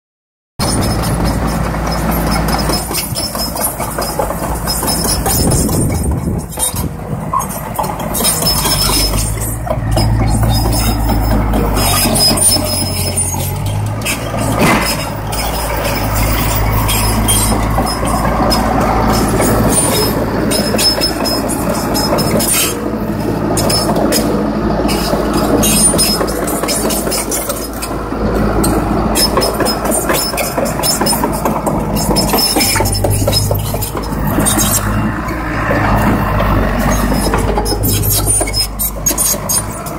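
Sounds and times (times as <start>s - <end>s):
dozer diesel engine running: 0.6s - 39.9s
steel tracks clanking: 0.6s - 39.9s.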